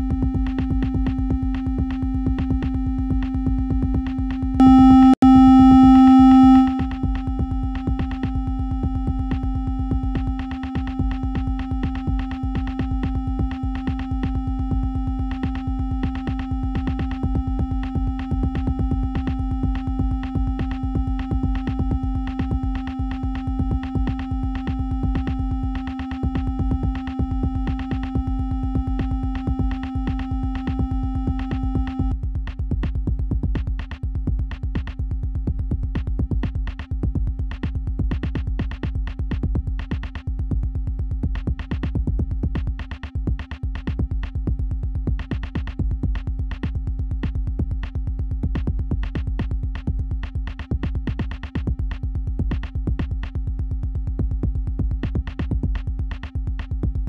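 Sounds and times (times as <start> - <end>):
deep synth bass: 0.0 - 22.8
drum machine pulse: 0.0 - 57.0
held synth tone: 4.6 - 7.5.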